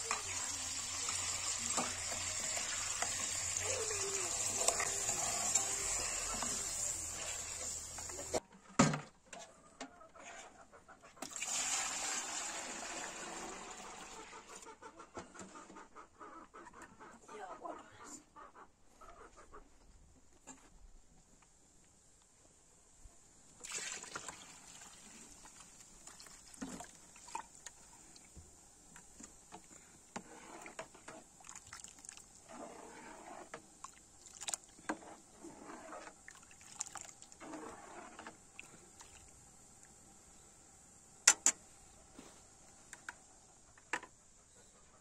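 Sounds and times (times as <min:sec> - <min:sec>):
liquid sloshing in metal pot: 0:30.2 - 0:39.3.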